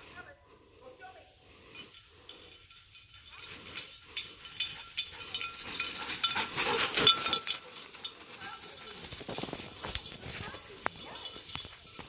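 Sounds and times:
light metallic jingling: 0.8 - 12.0
dog paws crunching leaves: 6.6 - 12.0.

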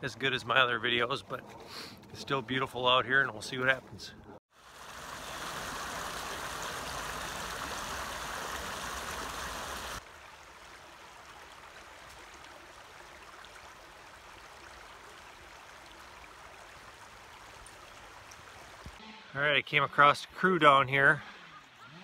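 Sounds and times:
creek water rippling over rocks: 4.5 - 19.0
gentle creek trickle: 4.5 - 19.0.

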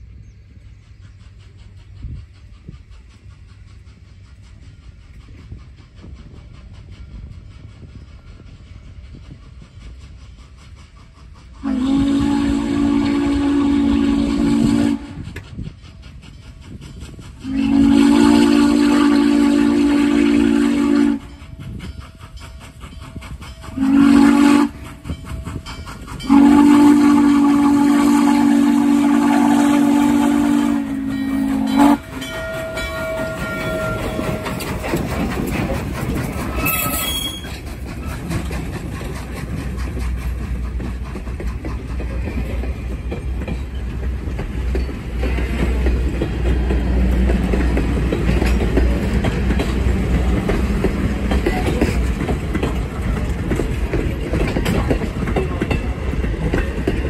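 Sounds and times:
locomotive passing: 0.0 - 57.0
train wheels rumbling and clicking: 0.0 - 57.0
steam locomotive whistle: 11.6 - 15.4, 17.4 - 21.5, 23.6 - 25.6, 26.2 - 34.8, 36.5 - 37.6.

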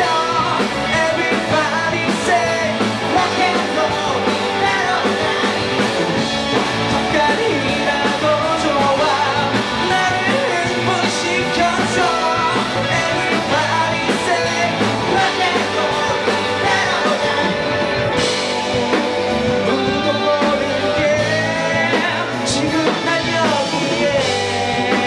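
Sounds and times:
rock band playing: 0.0 - 25.0.

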